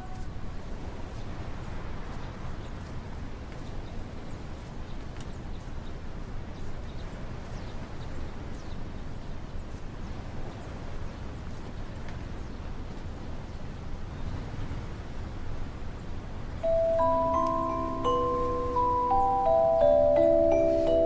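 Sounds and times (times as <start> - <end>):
small birds chirping: 3.6 - 12.7.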